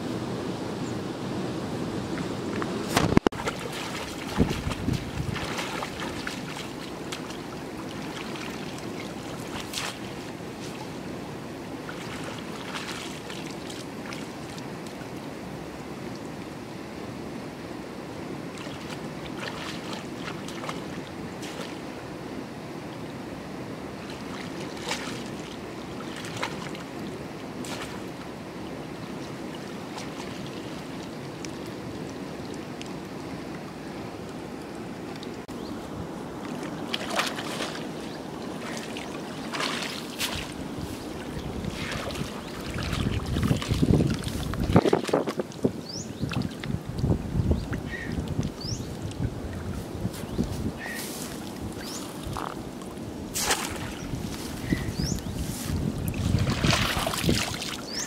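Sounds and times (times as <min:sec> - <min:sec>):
water noise: 0:00.0 - 0:58.0
wind: 0:00.0 - 0:58.0
splashes in shallow water: 0:02.9 - 0:11.1, 0:11.7 - 0:15.1, 0:18.5 - 0:21.9, 0:24.0 - 0:33.0, 0:36.3 - 0:58.0.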